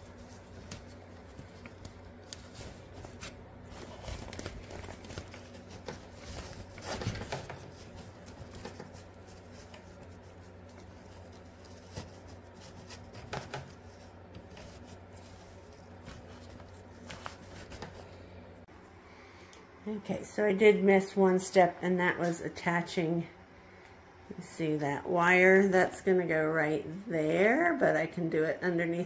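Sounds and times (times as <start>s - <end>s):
plastic cover rustling and crinkling: 0.0s - 18.3s.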